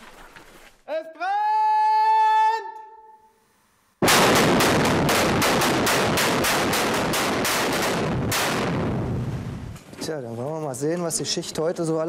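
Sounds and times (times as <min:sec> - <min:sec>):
explosive charges cracking: 0:04.0 - 0:09.9.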